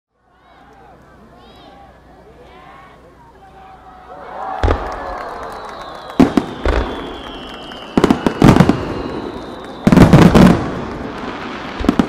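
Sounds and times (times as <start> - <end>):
fireworks bursting: 4.6 - 12.0.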